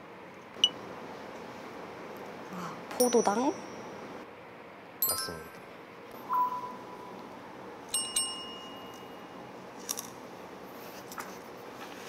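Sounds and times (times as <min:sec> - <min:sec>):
bright bell ding: 0:03.0 - 0:03.9, 0:05.0 - 0:05.6, 0:06.2 - 0:06.9, 0:08.0 - 0:09.3
short chime effects: 0:05.0 - 0:05.6, 0:06.2 - 0:07.1.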